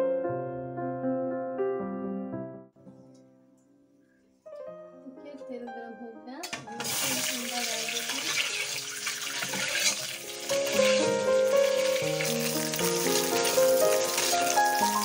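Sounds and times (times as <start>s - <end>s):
background music: 4.5s - 15.0s
eggs sizzling in oil: 6.6s - 15.0s.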